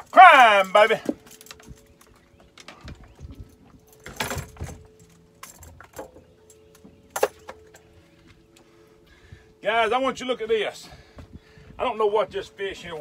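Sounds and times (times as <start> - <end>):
fishing tackle clinking: 0.0 - 8.6.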